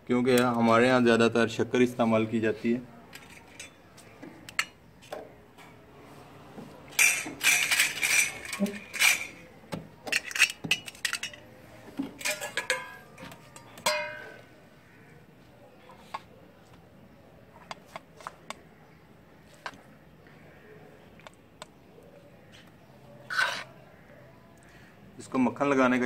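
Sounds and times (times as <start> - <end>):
spoons and plates clinking: 3.2 - 3.8, 6.9 - 11.5, 12.2 - 14.5
steel plate clanging: 12.2 - 14.4.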